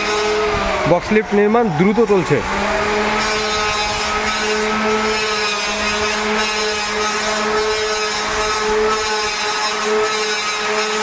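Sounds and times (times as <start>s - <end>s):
motor droning hum with whine: 0.0s - 11.0s.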